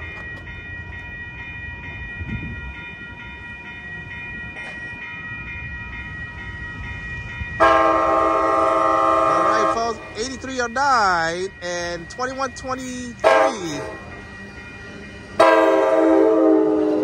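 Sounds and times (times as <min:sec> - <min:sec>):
train rumble: 0:00.0 - 0:17.0
train horn chord: 0:07.6 - 0:10.2, 0:13.2 - 0:14.1, 0:15.4 - 0:17.0
repeating high ringing bell: 0:09.7 - 0:15.4.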